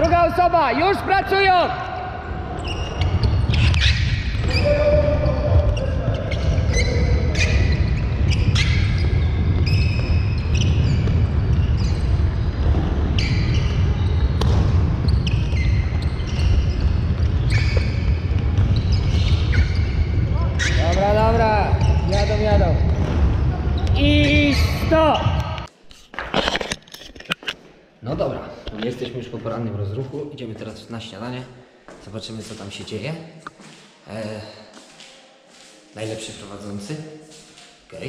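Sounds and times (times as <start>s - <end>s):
sneakers squeaking: 2.1s - 25.7s.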